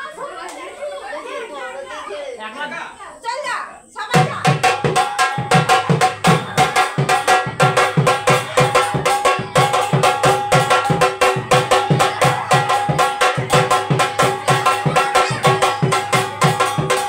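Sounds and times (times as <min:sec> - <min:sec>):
hand-beaten barrel drum: 0:04.2 - 0:17.0.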